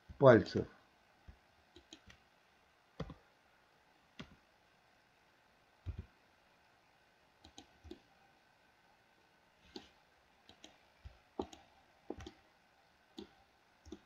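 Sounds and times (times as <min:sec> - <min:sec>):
computer mouse clicks: 0:01.3 - 0:02.2, 0:03.0 - 0:03.2, 0:04.2 - 0:04.4, 0:05.8 - 0:06.1, 0:07.4 - 0:08.1, 0:09.7 - 0:12.4, 0:13.2 - 0:14.0.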